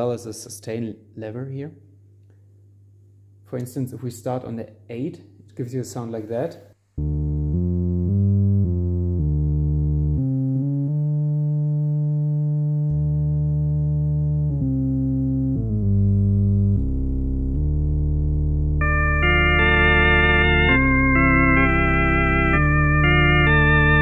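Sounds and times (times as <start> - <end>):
electronic organ bass notes: 7.0 - 24.0.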